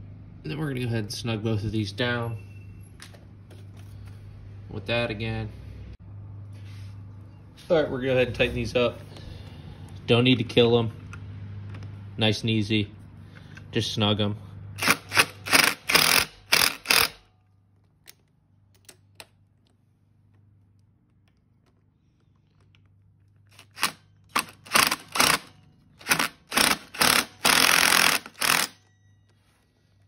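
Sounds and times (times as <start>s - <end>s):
cordless impact driver bursts: 14.8s - 17.2s, 23.5s - 28.8s.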